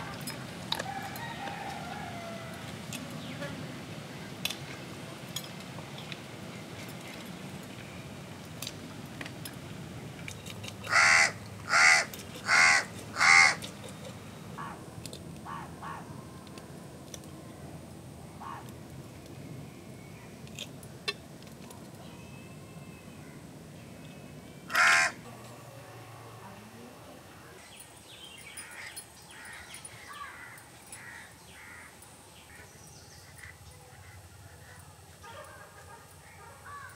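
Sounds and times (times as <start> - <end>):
crow cawing: 10.9 - 13.6, 15.5 - 16.1, 18.4 - 18.6, 24.7 - 25.2, 28.6 - 32.6, 36.2 - 36.9.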